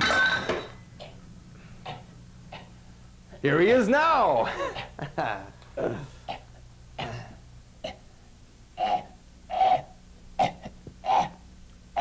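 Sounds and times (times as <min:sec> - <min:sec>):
puppet voice coughing and grunting: 0:08.8 - 0:11.4.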